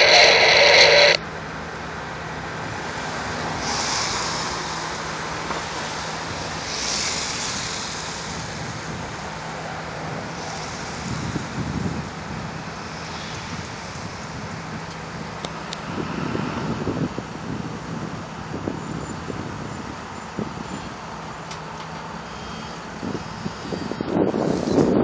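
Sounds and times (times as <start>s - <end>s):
wind buffeting microphone: 5.0s - 22.2s, 22.8s - 25.0s.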